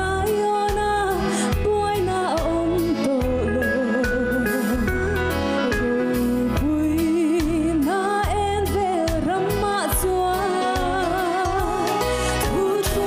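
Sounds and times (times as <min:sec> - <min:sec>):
instrumental backing music: 0:00.0 - 0:13.0
woman singing gospel song: 0:05.6 - 0:13.0.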